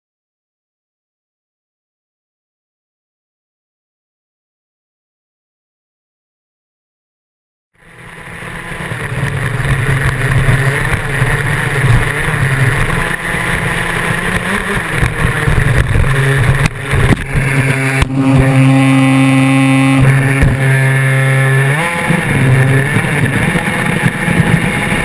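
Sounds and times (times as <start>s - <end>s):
toy car motor humming: 7.8s - 25.0s.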